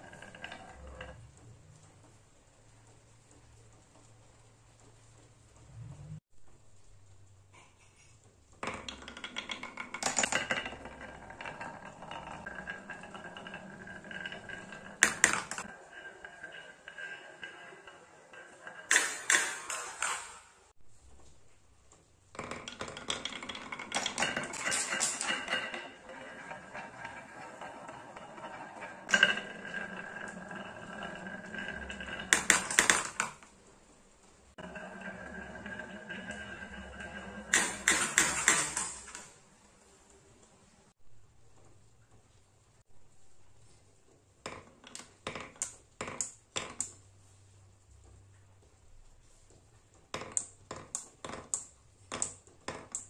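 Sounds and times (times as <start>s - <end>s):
marbles rolling down wooden track: 0.0s - 2.2s, 8.5s - 20.7s, 22.3s - 39.4s, 50.1s - 53.0s.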